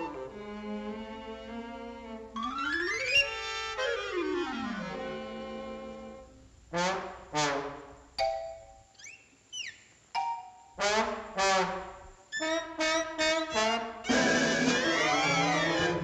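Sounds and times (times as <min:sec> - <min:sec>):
orchestral cartoon music: 0:12.4 - 0:16.0
short brass stabs: 0:12.8 - 0:16.0.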